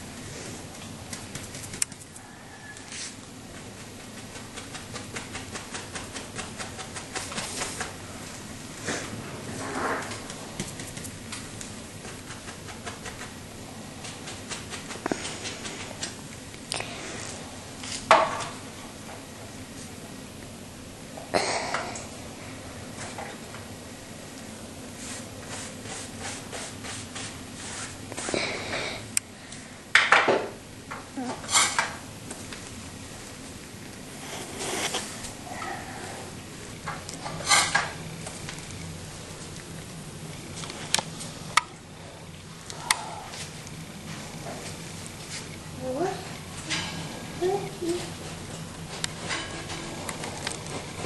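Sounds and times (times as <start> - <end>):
steady hiss: 0.0 - 51.0
faint scraping strokes: 34.1 - 36.3.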